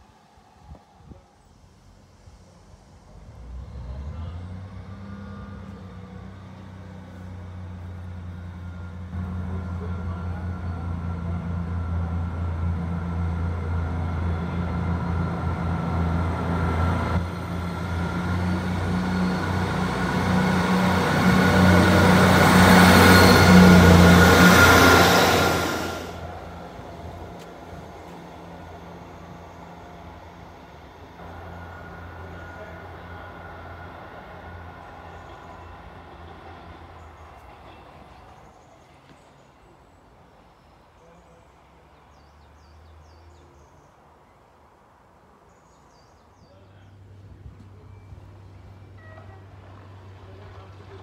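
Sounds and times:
diesel train engine drone: 0.0s - 45.4s, 46.6s - 51.0s
rising hiss: 16.1s - 36.8s.

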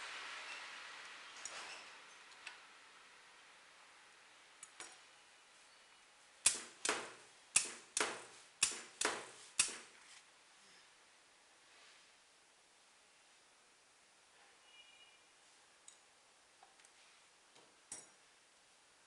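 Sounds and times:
pneumatic valves clicking: 6.4s - 9.9s
sharp pneumatic snaps: 6.4s - 9.9s.

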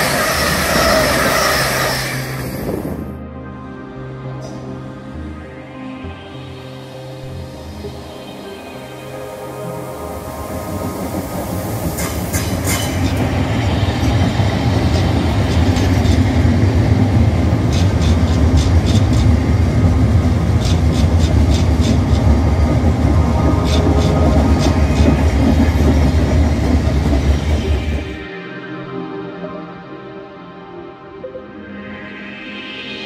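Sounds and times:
train rumbling past: 0.0s - 3.2s, 7.5s - 28.3s.

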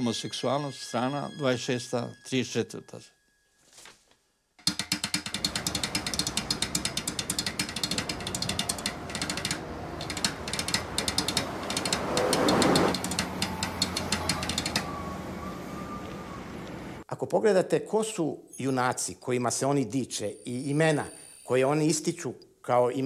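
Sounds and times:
rapid mechanical clicking: 4.6s - 14.9s
swell of noise: 7.9s - 17.0s.

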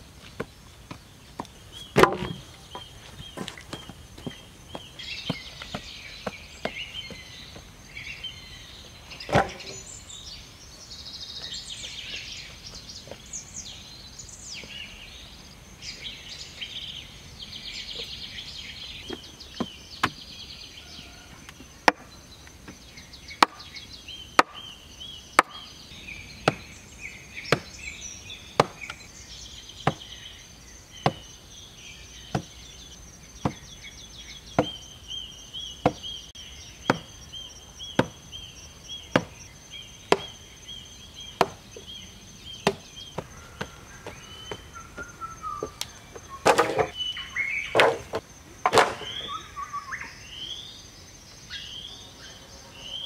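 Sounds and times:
birds chirping: 0.0s - 53.0s
wooden post being pounded: 2.0s - 2.4s, 24.4s - 24.7s, 25.4s - 25.6s, 28.6s - 28.9s, 33.4s - 33.6s, 34.6s - 34.8s, 35.8s - 36.1s, 36.8s - 37.1s, 38.0s - 38.2s, 39.1s - 39.4s.

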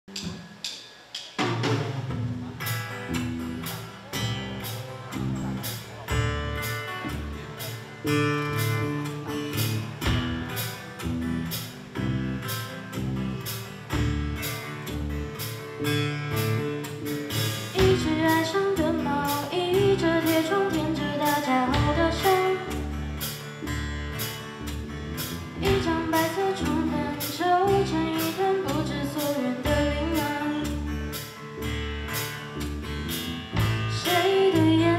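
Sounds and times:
drum kit steady beat: 0.0s - 34.9s
electric guitars and bass: 2.1s - 34.9s
person singing lead vocal: 17.8s - 22.9s, 25.6s - 30.8s, 34.0s - 34.9s.

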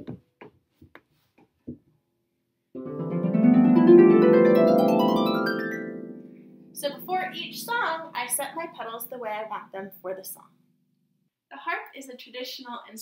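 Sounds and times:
harp glissando: 2.8s - 9.1s.

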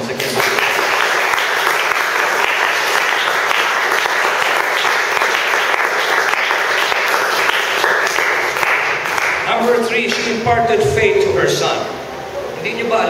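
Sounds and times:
congregation applauding: 0.0s - 10.3s.

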